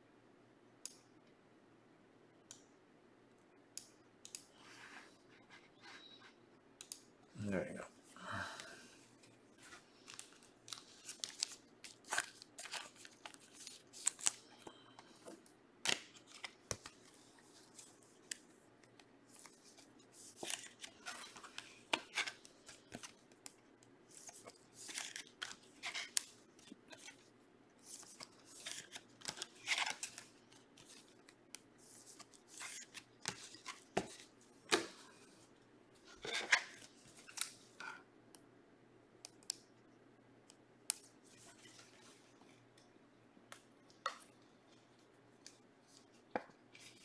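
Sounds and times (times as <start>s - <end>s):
foil wrappers crinkling and tearing: 10.0s - 14.5s.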